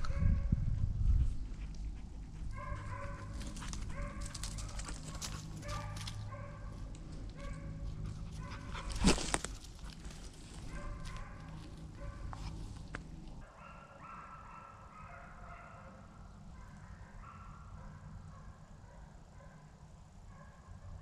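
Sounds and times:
hounds baying: 0:01.9 - 0:12.6.

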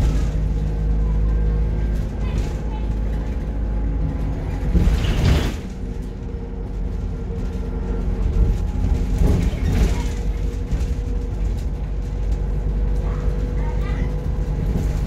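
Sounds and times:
bus engine low rumble: 0:00.0 - 0:15.0.

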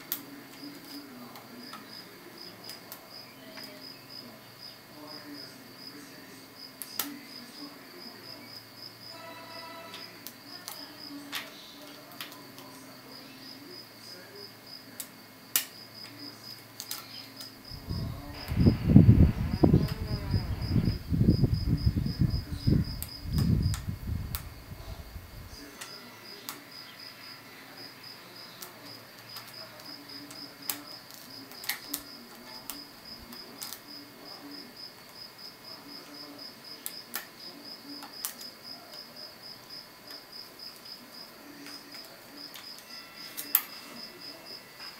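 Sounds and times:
uneven low rumble: 0:17.8 - 0:25.5.

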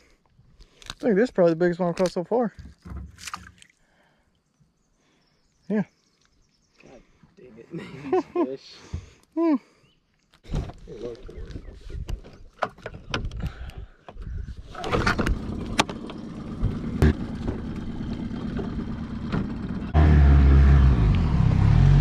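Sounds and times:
outboard motor running: 0:13.5 - 0:21.2.

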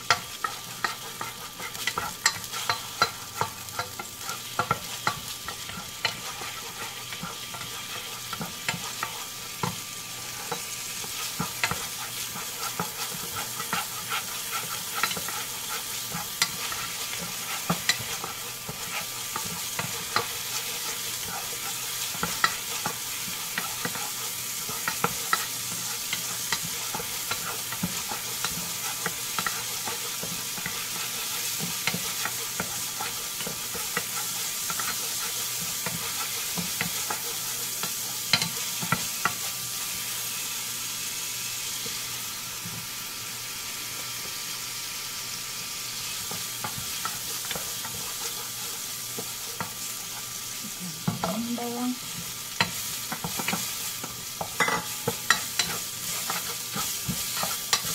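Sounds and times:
spatula scraping and tapping pan: 0:00.0 - 0:39.9, 0:46.2 - 0:50.4, 0:52.1 - 0:57.9
garlic sizzling in hot oil: 0:00.0 - 0:57.9.

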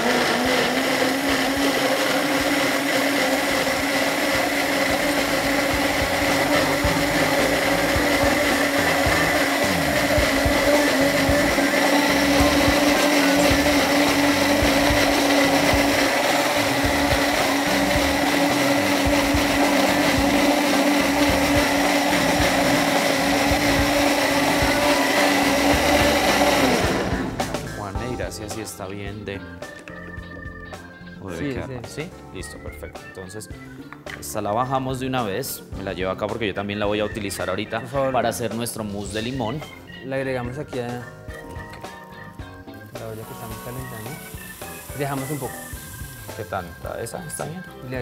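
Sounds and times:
contents churning in blender: 0:00.0 - 0:27.5
blender motor whine: 0:00.0 - 0:27.8, 0:43.2 - 0:47.7.

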